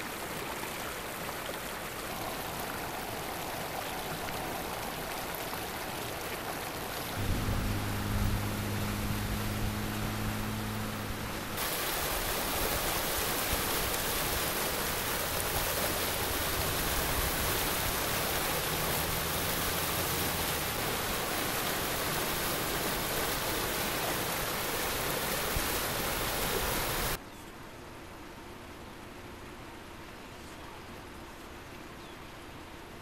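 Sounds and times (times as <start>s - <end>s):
floodwater rushing through ditch: 0.0s - 27.2s
faint low hum: 7.2s - 11.6s.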